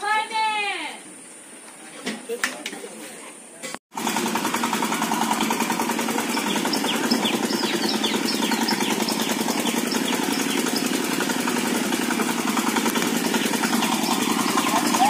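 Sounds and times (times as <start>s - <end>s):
small engine puttering: 3.9s - 15.0s.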